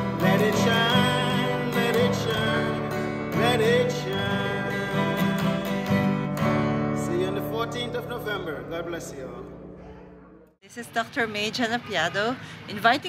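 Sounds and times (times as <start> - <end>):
man singing with vibrato: 0.0 - 6.2, 6.9 - 8.3
strummed acoustic guitar: 0.0 - 10.2.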